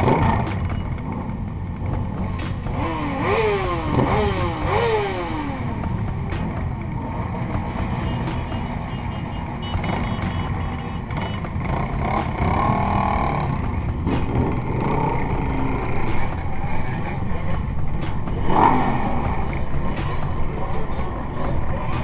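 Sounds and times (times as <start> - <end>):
motorcycle engines rumbling: 0.0 - 22.0.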